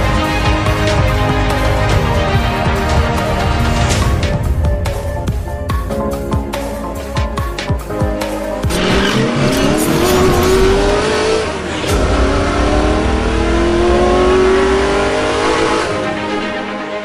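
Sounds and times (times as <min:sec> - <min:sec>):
racing motorcycle engine accelerating: 0:08.7 - 0:16.4.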